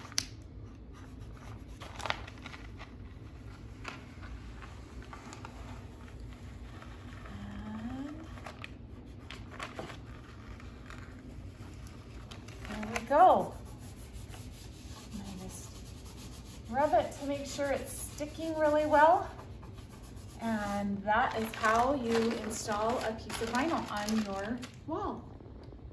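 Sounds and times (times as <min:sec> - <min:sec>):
tape crackling and scraping: 0:00.0 - 0:24.8.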